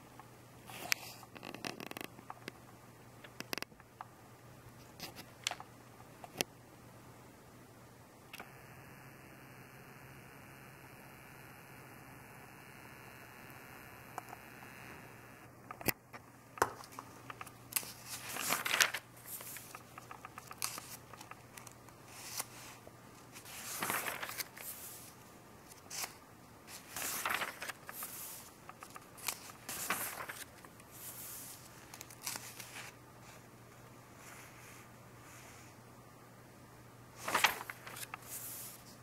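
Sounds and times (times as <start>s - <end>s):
faint steady hum: 0.0s - 39.0s
magazine pages rustling: 16.6s - 33.0s, 37.2s - 39.0s.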